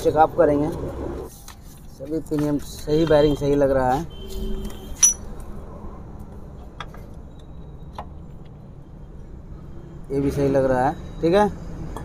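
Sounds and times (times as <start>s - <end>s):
metal gear parts clinking: 4.9s - 5.3s.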